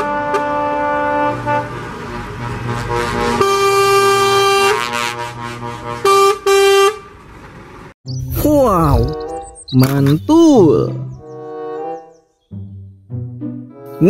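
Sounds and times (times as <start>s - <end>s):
truck air horns honking: 0.0s - 7.2s
trucks rumbling past: 0.0s - 9.6s.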